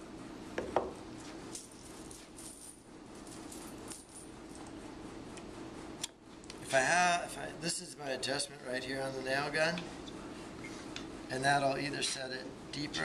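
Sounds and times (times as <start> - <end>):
wooden blocks knocking on workbench: 0.6 - 1.0.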